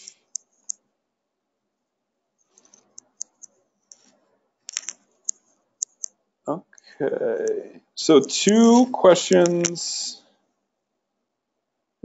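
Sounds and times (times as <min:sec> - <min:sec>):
mouse and keyboard clicks: 0:02.5 - 0:04.1, 0:04.7 - 0:06.1.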